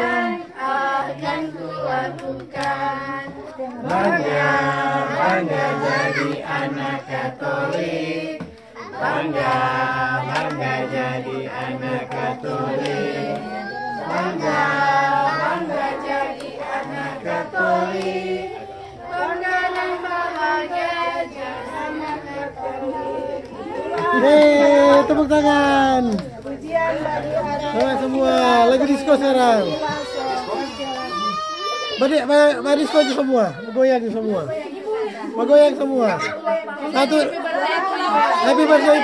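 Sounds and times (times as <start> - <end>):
young children singing: 0.0 - 25.2.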